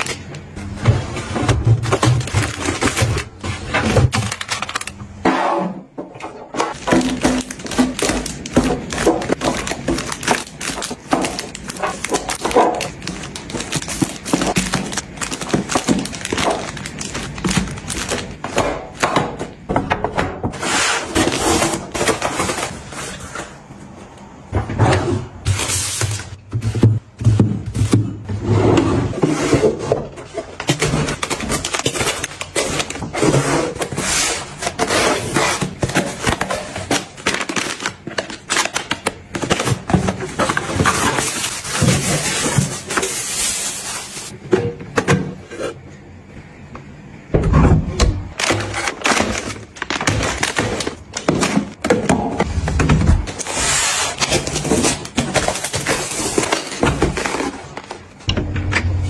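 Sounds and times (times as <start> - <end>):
plastic packs crinkling: 0.0 - 0.8, 1.6 - 5.2, 6.6 - 19.3, 30.2 - 44.4, 48.3 - 58.2.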